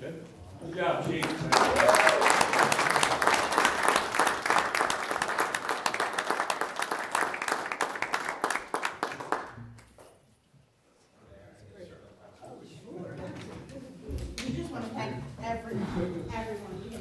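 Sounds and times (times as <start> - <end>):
audience applauding: 1.0 - 9.9.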